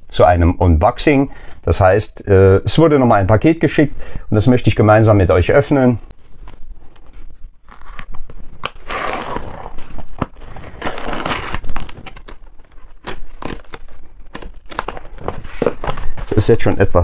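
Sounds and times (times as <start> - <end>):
box cutter slicing tape and cardboard: 8.7 - 12.3.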